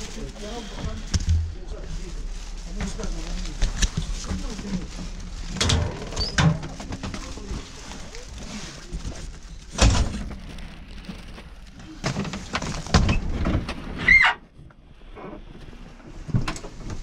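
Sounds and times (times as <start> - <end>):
knocks and thuds: 0.9 - 1.7.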